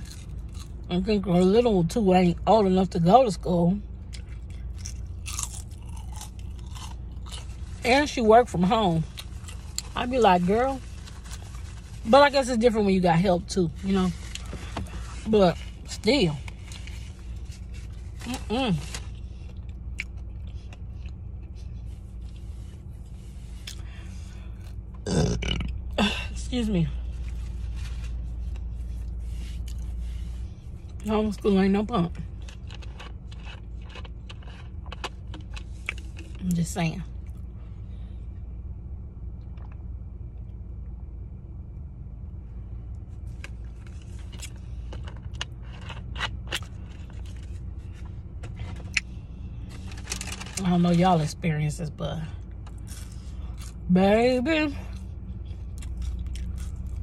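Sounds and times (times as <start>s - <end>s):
eating crunches: 0.0s - 0.9s, 4.1s - 7.8s, 32.4s - 36.4s, 52.6s - 53.8s, 55.7s - 57.0s
low hum: 0.0s - 57.0s
chewing with mouth clicks: 4.0s - 7.6s, 19.4s - 22.5s, 32.4s - 36.4s, 55.7s - 57.0s.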